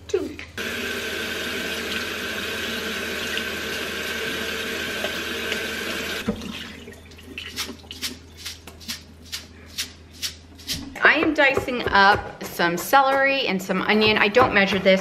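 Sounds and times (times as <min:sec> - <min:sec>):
faucet water rushing: 0:00.6 - 0:08.0.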